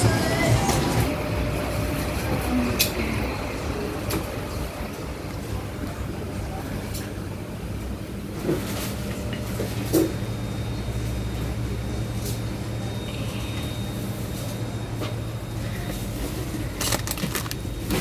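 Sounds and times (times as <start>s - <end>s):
refrigeration hum: 0.0s - 18.0s
plastic bags rustling: 16.3s - 18.0s.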